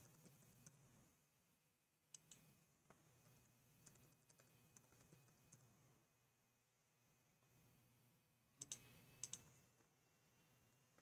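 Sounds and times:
faint keyboard keystrokes: 8.6s - 9.6s.

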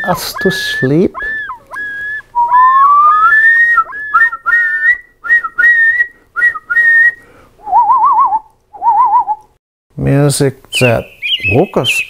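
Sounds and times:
loon calling: 0.0s - 5.0s, 10.8s - 12.0s
wavering whistled call: 0.0s - 9.4s, 10.7s - 12.0s.

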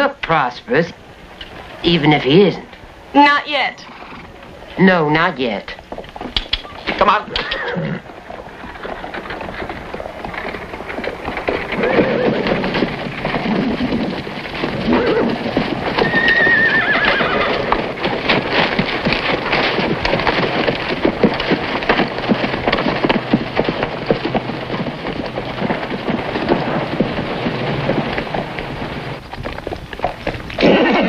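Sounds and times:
horse hooves clip-clopping: 0.0s - 31.0s
horse whinnying: 3.8s - 4.7s, 6.7s - 8.2s, 11.6s - 12.8s, 14.7s - 18.0s.

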